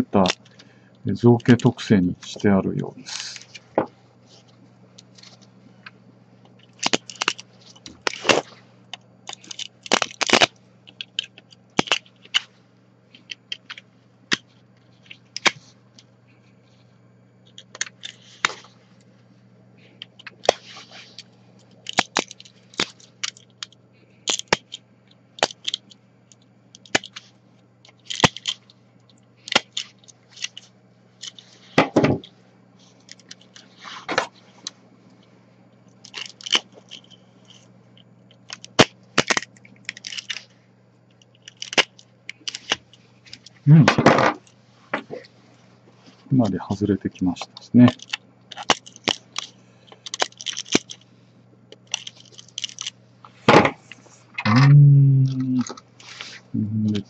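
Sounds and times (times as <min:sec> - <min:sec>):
faint low hum: 0:00.0 - 0:57.0
plastic cracking and snapping: 0:05.0 - 0:12.5, 0:13.1 - 0:16.1, 0:17.5 - 0:18.7, 0:20.0 - 0:24.8, 0:25.4 - 0:32.3, 0:35.9 - 0:40.5, 0:41.1 - 0:45.3, 0:47.4 - 0:51.0, 0:51.7 - 0:53.0.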